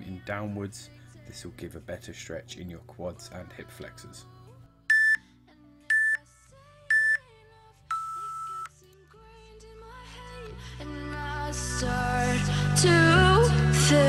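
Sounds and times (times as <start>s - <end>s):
soft background music: 0.0s - 14.0s
timer beeps: 4.9s - 5.2s, 5.9s - 6.2s, 6.9s - 7.2s, 7.9s - 8.7s.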